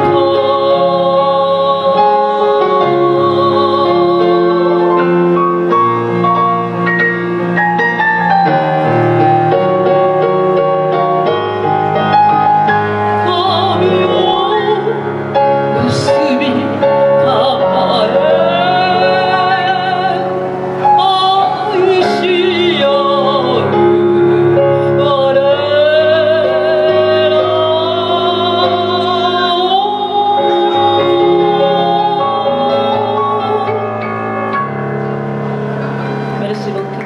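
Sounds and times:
woman singing with vibrato: 0.0s - 5.7s, 13.0s - 34.2s
backing accompaniment: 0.0s - 37.0s.

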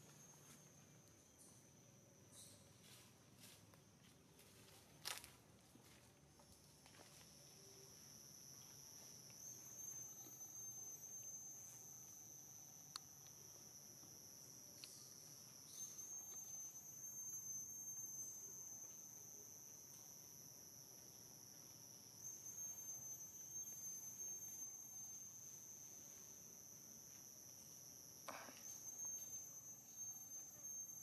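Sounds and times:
high-pitched insect drone: 0.0s - 3.6s, 4.4s - 31.0s.

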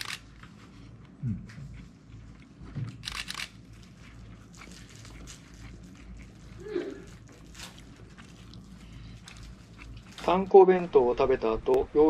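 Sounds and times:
crunching and chewing: 0.0s - 10.5s
small clicks and clatters: 2.9s - 3.5s
crisp crackles: 3.0s - 10.6s.

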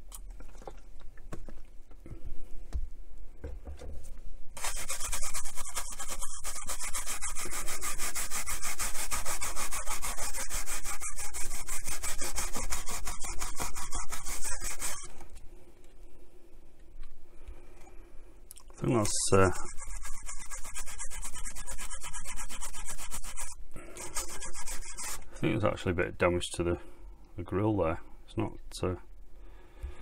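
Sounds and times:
toothbrush scrubbing metal grill: 4.6s - 15.1s, 18.9s - 25.2s.

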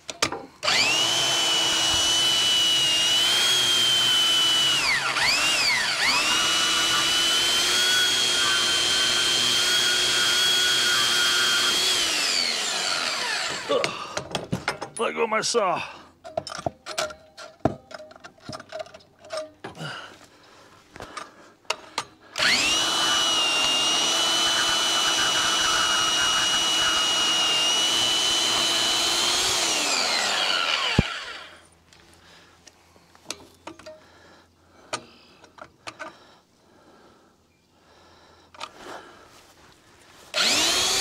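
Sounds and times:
bandsaw whining: 0.6s - 14.2s, 22.3s - 31.7s, 40.3s - 41.0s.

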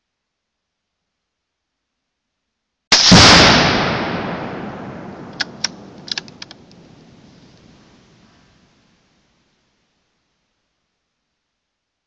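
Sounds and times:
rifle shot: 2.9s - 8.1s
target exploding with echoing boom: 3.0s - 7.8s
light sharp clicks: 5.4s - 6.9s.

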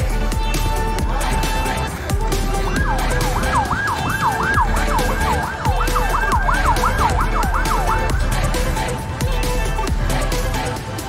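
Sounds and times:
background music with steady beat: 0.0s - 11.0s
yelp siren wailing: 2.5s - 9.2s.

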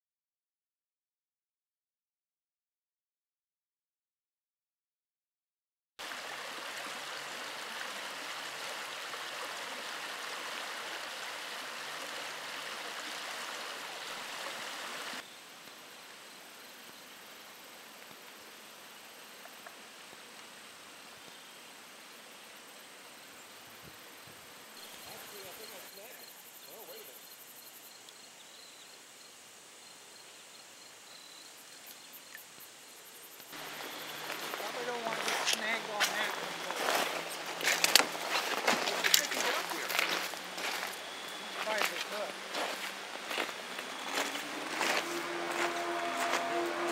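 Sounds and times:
stream water rushing: 6.0s - 16.2s, 33.5s - 46.9s
insects chirping in a high trill: 20.6s - 46.8s.

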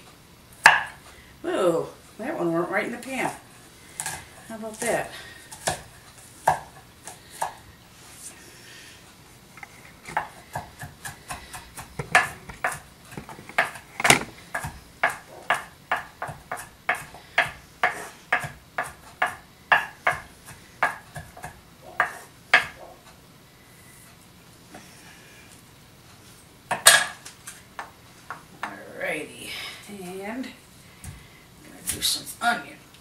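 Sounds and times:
knife chopping on wooden board: 0.6s - 1.0s, 10.1s - 22.9s.

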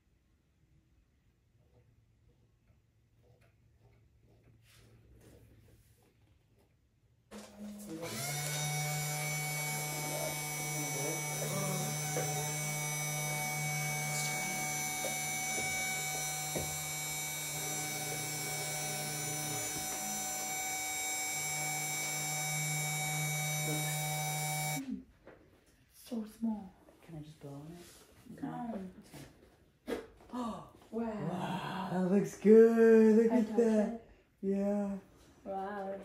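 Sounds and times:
spindle motor whine: 7.4s - 24.8s
low motor hum: 8.0s - 24.8s.

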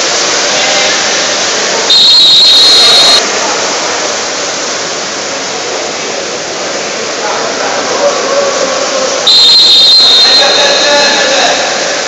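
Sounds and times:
referee's whistle blast: 1.9s - 3.2s, 9.3s - 11.2s.

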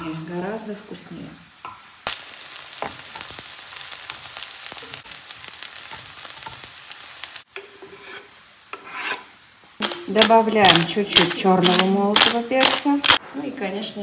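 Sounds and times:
onions sizzling in oil: 0.0s - 13.2s
metal spoon stirring: 4.8s - 6.7s
knife scraping cutting board: 7.7s - 9.3s.

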